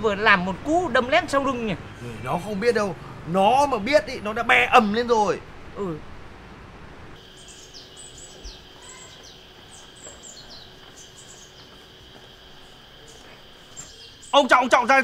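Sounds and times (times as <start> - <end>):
faint street background: 0.0 - 15.0
small birds chirping: 7.2 - 15.0.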